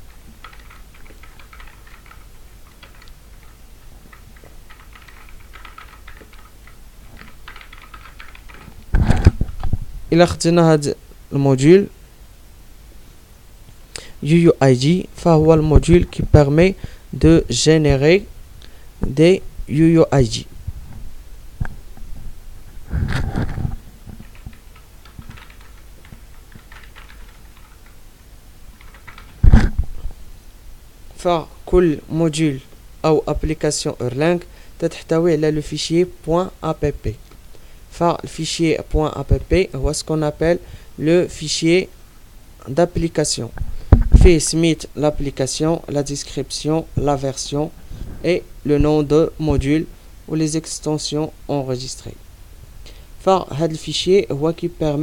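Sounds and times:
typing on computer keyboard: 0:00.4 - 0:08.7, 0:24.2 - 0:28.0, 0:28.8 - 0:29.7.

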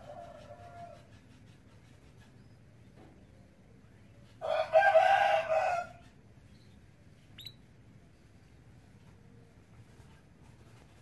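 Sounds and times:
rooster crowing: 0:04.4 - 0:06.0.

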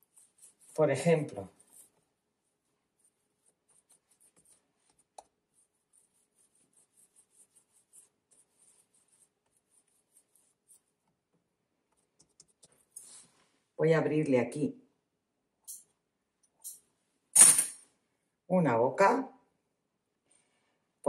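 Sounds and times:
hands rolling dough on countertop: 0:00.0 - 0:13.4.

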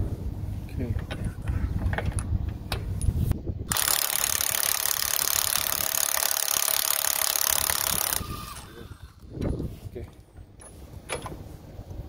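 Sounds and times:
impact driver rattling: 0:03.7 - 0:08.8.

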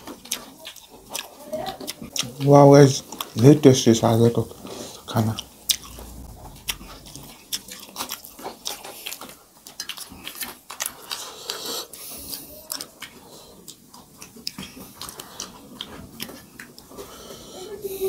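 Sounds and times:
wet clicks of eating by hand: 0:07.5 - 0:16.9.

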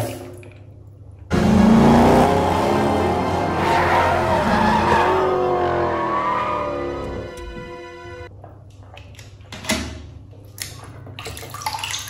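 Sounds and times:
film music: 0:01.3 - 0:08.3
race car engines running: 0:01.3 - 0:08.3
tyres squealing: 0:02.3 - 0:07.7.

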